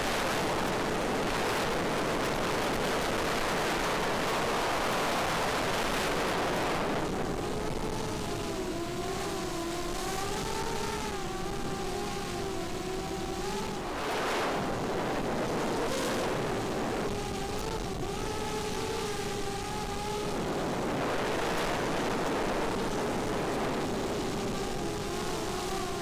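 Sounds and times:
wind rush on microphone: 0.0s - 26.0s
quadcopter motors whining: 0.3s - 26.0s.

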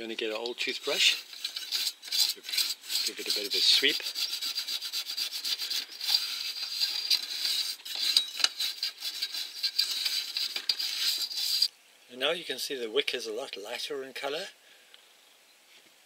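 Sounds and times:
toothbrush scrubbing metal rim: 0.6s - 11.7s.

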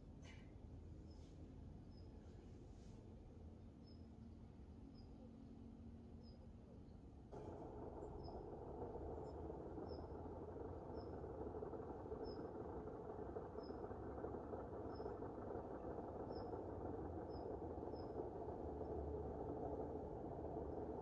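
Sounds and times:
low rush of noise: 7.3s - 21.0s.

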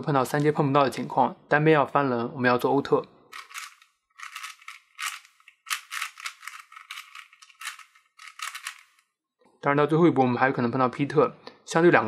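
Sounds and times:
puzzle cube turning clicks: 3.3s - 9.1s.

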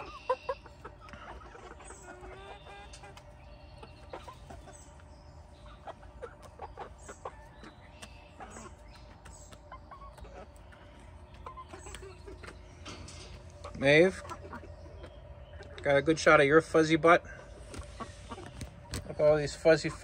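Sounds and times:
hens clucking: 0.0s - 20.0s.

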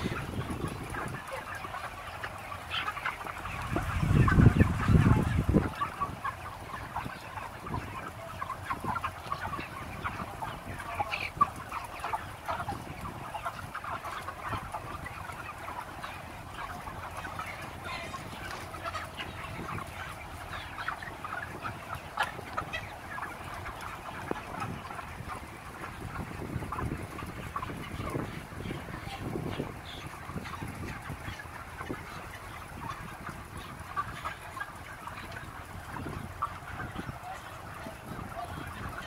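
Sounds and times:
chickens clucking: 0.0s - 39.0s.

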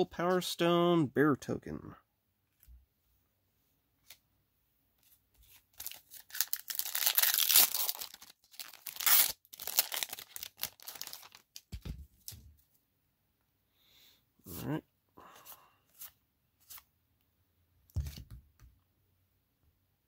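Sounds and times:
foil wrapper tearing and crinkling: 5.8s - 11.7s.

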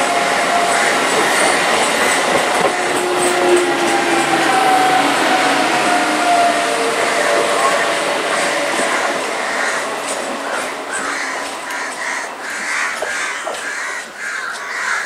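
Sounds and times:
electric train running on track: 0.0s - 14.9s
crows cawing: 8.4s - 15.0s.

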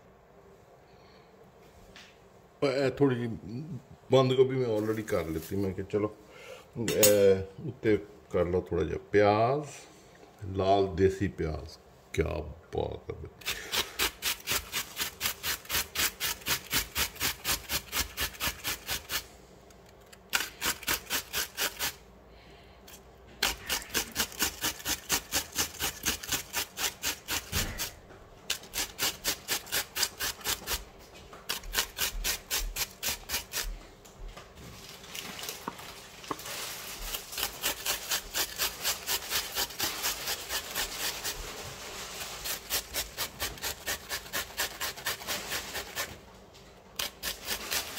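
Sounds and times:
onion rasping on a grater: 13.4s - 19.3s, 20.3s - 22.0s, 23.4s - 30.9s, 31.5s - 33.8s, 36.3s - 46.2s, 47.0s - 47.9s.

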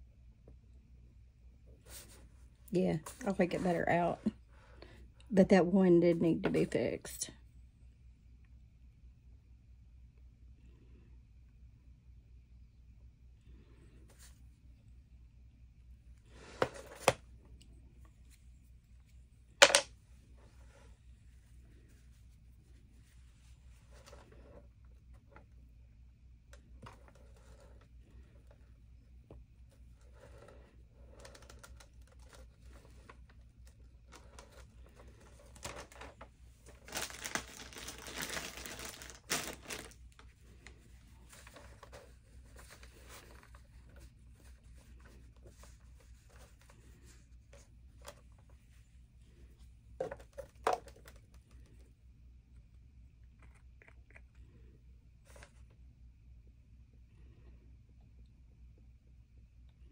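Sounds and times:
tissue paper crinkling: 34.1s - 48.8s.

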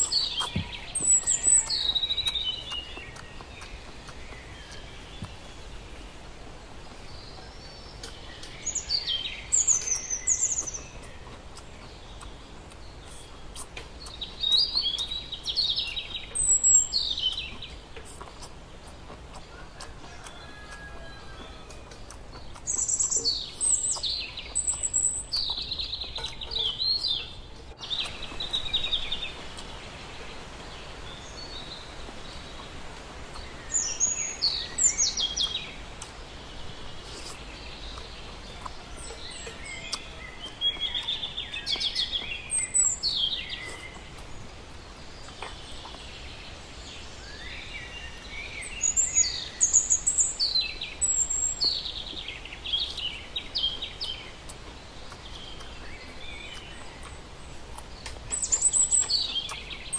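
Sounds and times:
birds singing and chirping: 0.0s - 59.9s
low background noise: 0.0s - 59.9s.

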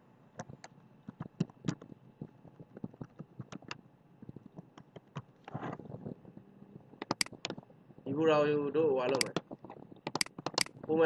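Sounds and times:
computer mouse clicking: 2.5s - 5.3s, 7.0s - 7.6s, 9.1s - 9.4s, 10.0s - 10.8s.

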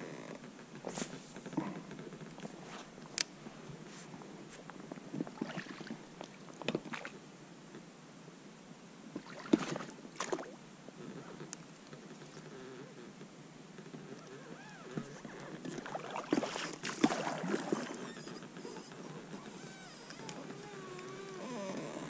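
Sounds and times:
oars splashing in water: 5.3s - 7.1s, 9.2s - 10.6s, 15.6s - 22.0s.

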